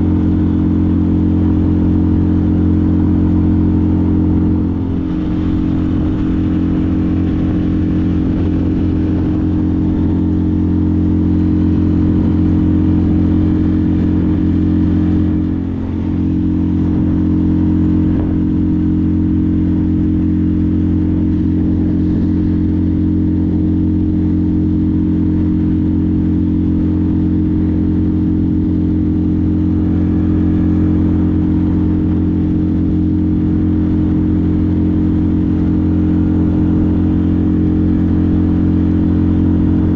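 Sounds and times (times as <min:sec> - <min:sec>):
outboard motor running: 0:00.0 - 0:39.9.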